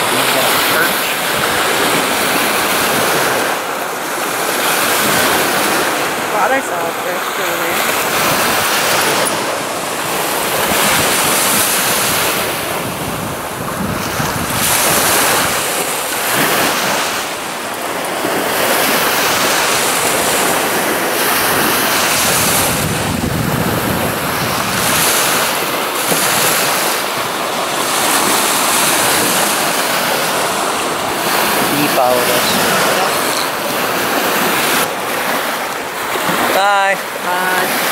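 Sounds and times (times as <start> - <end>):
waves washing up a beach: 0.0 - 37.9
wind buffeting microphone: 7.8 - 36.6.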